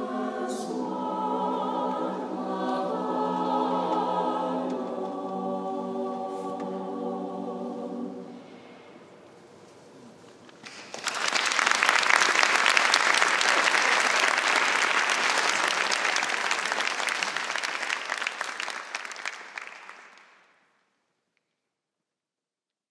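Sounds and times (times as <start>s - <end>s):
audience applauding: 10.6s - 20.4s.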